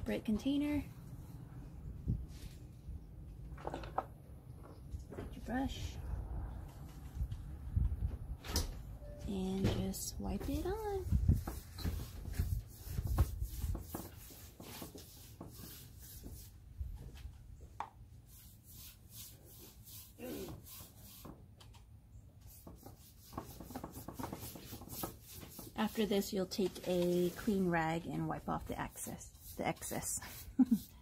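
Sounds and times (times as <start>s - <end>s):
brush strokes scraping wood: 9.8s - 17.2s, 18.2s - 21.4s, 22.4s - 31.0s.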